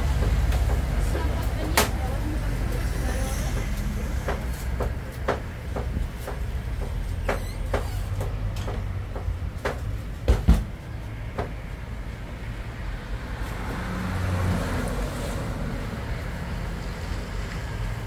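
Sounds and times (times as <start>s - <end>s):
sharp knocks and clatters: 3.5s - 11.6s.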